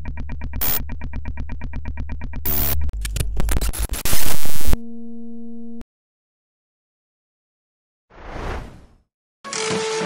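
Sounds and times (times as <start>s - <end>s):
glitchy digital stutters: 3.5s - 4.8s.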